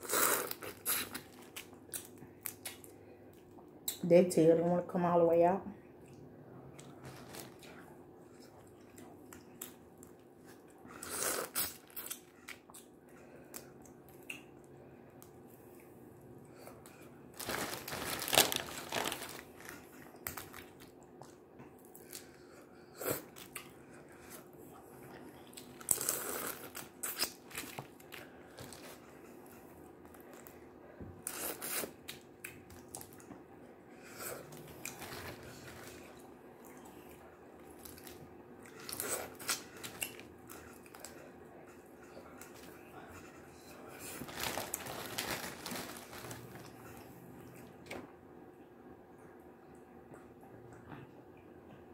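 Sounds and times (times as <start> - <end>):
faint steady hum: 0.0 - 51.9
chewing: 34.1 - 47.8.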